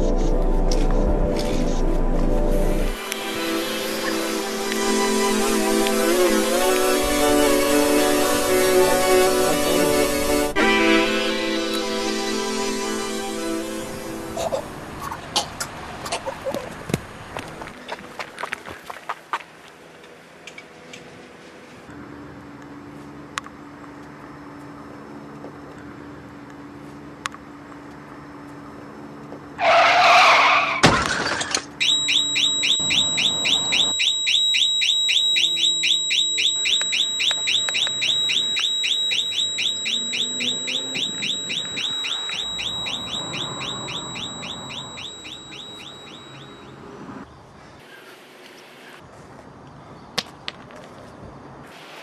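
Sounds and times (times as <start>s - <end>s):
tyre screech: 29.6s - 31.6s
car alarm chirping rapidly: 31.8s - 46.8s.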